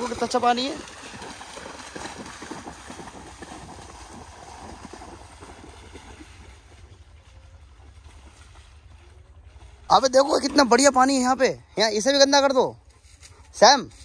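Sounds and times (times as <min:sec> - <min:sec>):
dogs splashing through water: 0:00.0 - 0:11.6
wind rumbling on microphone: 0:00.3 - 0:10.0.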